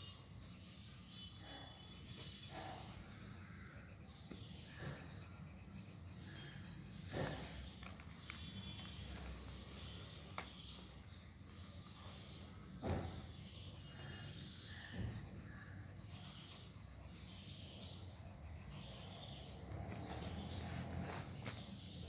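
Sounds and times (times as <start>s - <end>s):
pencil scratching on paper: 0.0s - 22.0s
thump: 12.8s - 13.2s.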